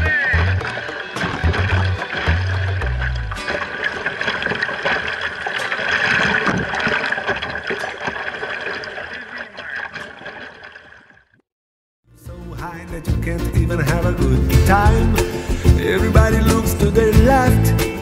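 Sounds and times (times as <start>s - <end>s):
music: 0.0s - 3.6s, 12.1s - 18.0s
water splashing against kayak: 0.0s - 11.3s.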